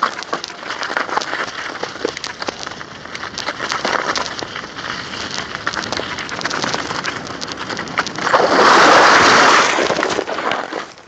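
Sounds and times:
bike rattling clicks: 0.0s - 8.4s
bike tyres crunching on snow: 0.0s - 11.0s.

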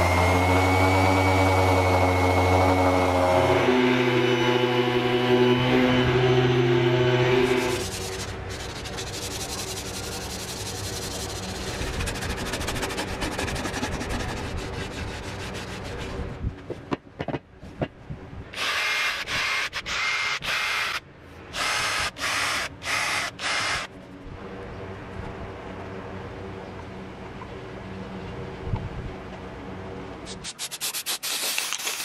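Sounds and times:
sandpaper rubbing on wood: 7.5s - 16.3s, 30.3s - 32.0s.

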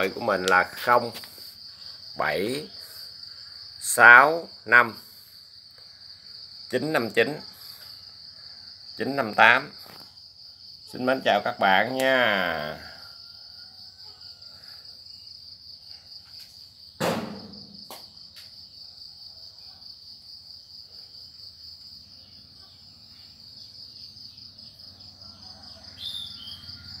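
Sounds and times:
crickets chirping: 0.0s - 27.0s
sharp knock: 17.0s - 18.1s.

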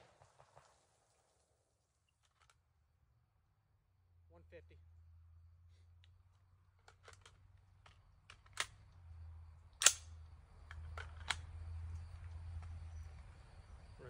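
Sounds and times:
gunshots: 0.0s - 1.2s.

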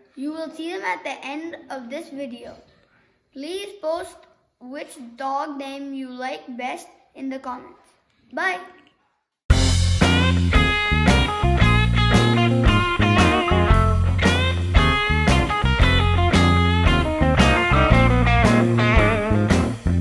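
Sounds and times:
music with heavy bass beat: 9.5s - 20.0s.

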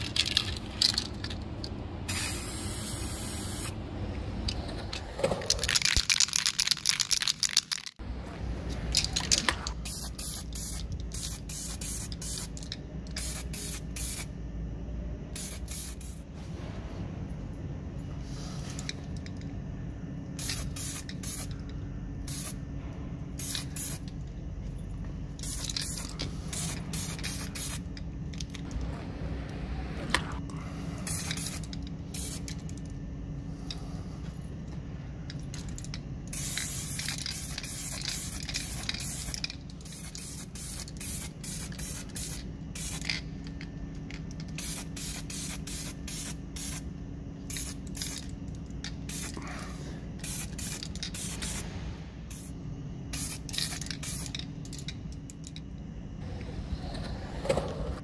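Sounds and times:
steady low hum: 0.0s - 58.0s
aerosol spray can hissing: 2.1s - 3.7s.

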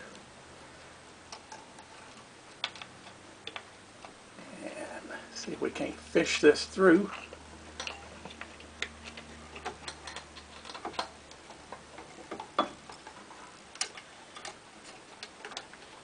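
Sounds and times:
faint low hum: 0.0s - 16.0s
wire tapping against metal parts: 1.3s - 4.2s, 7.1s - 16.0s.

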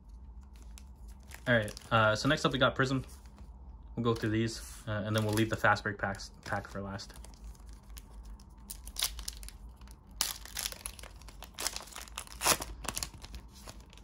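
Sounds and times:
wrapper tearing and crinkling: 0.4s - 2.1s, 6.5s - 14.0s.

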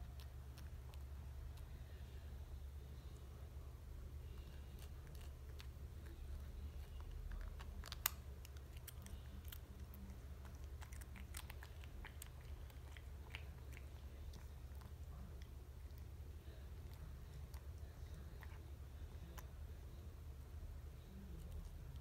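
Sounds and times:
cat crunching a chip: 0.0s - 2.4s, 4.1s - 19.7s.

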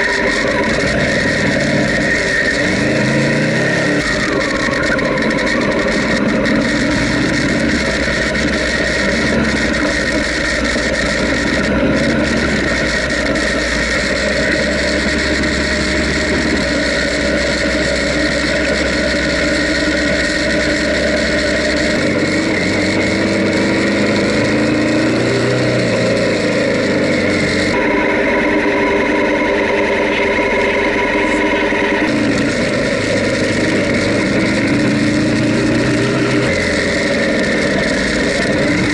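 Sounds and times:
motorcycle engine running: 0.0s - 38.9s.

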